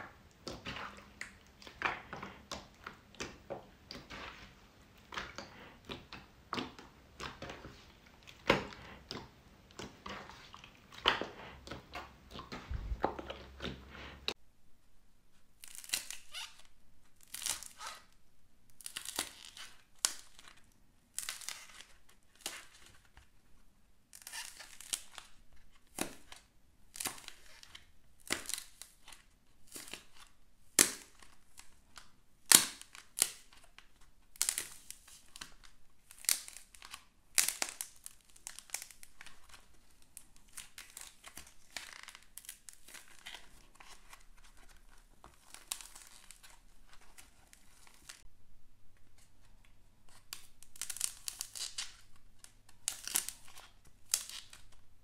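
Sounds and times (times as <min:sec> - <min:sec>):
slime squelching and tearing: 0:00.1 - 0:14.4, 0:15.6 - 0:18.1, 0:18.7 - 0:23.2, 0:34.4 - 0:48.2, 0:50.1 - 0:54.8.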